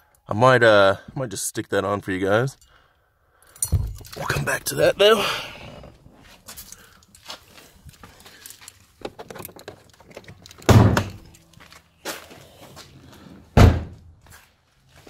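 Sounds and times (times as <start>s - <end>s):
car door thunks: 13.5s - 14.0s.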